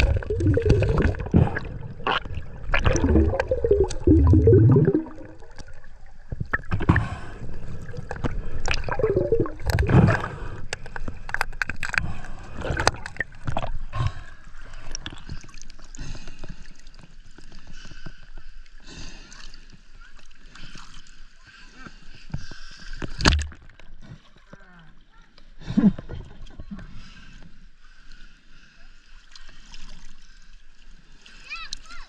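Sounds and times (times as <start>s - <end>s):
water gurgling and sloshing: 0.0s - 18.8s, 19.4s - 25.1s, 26.0s - 31.8s.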